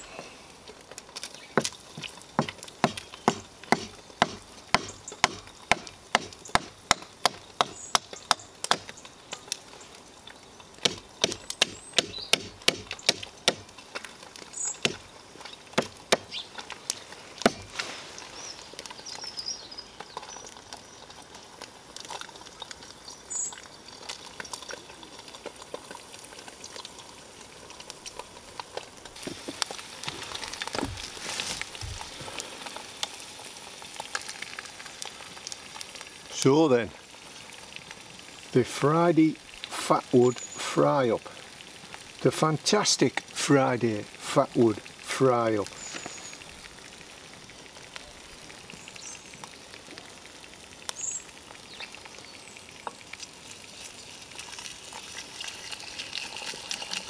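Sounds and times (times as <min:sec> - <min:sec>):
egg sizzling in frying pan: 0:00.0 - 0:57.0
knife chopping wood: 0:02.4 - 0:08.9, 0:10.8 - 0:13.7, 0:14.8 - 0:15.0, 0:15.8 - 0:16.3, 0:17.4 - 0:17.8.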